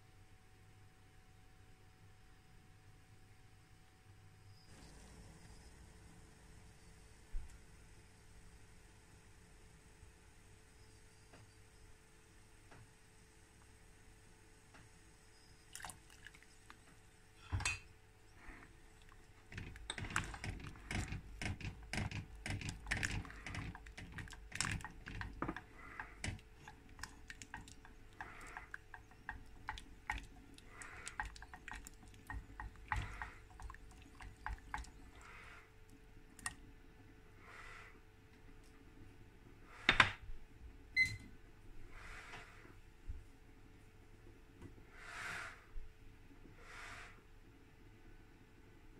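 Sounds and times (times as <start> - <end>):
spoon stirring water in pot: 15.7 - 16.8, 19.0 - 35.4.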